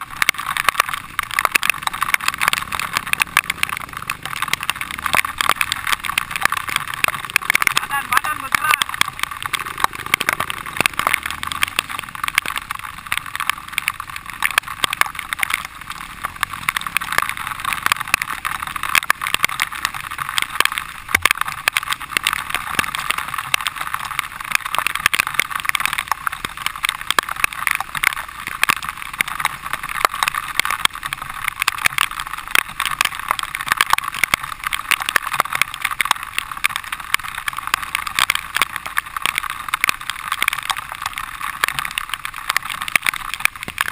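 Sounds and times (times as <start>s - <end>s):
dirt bike engine: 1.9s - 14.3s.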